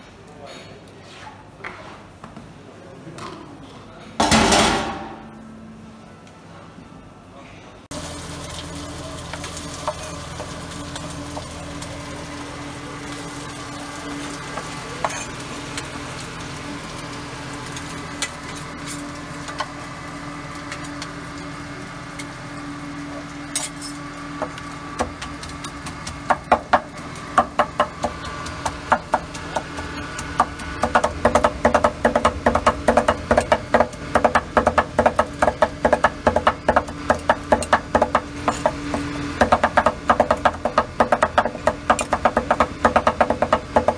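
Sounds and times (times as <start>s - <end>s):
utensils clinking: 23.5s - 24.6s.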